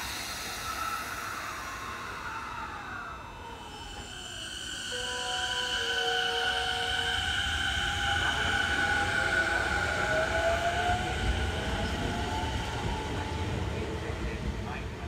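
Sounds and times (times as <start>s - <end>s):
train motor whine: 0.0s - 13.8s
rumble of wheels on rails: 0.0s - 15.0s.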